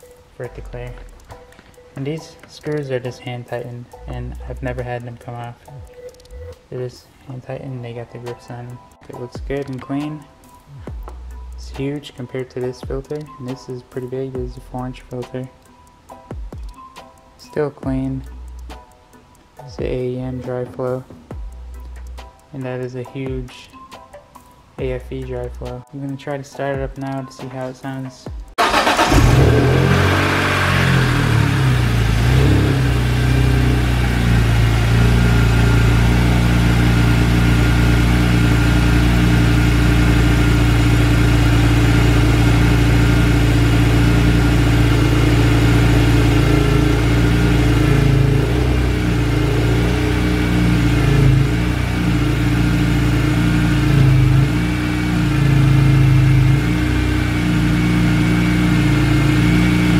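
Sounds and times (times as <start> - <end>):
car engine idling: 28.6 - 59.9.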